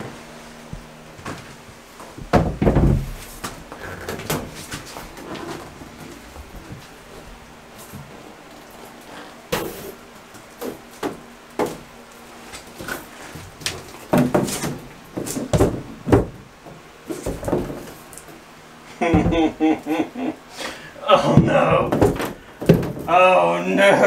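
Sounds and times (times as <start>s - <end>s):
plastic panel knocking and rustling: 2.2s - 3.2s, 14.1s - 16.4s, 21.4s - 23.1s.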